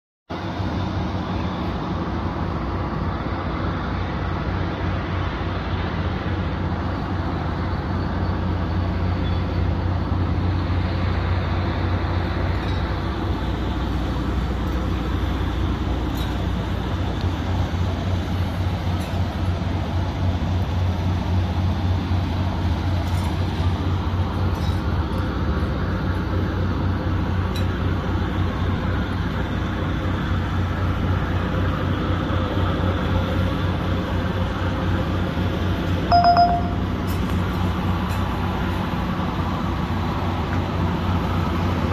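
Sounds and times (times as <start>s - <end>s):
ride machinery drone: 0.4s - 41.9s
faint clinks: 36.1s - 36.9s.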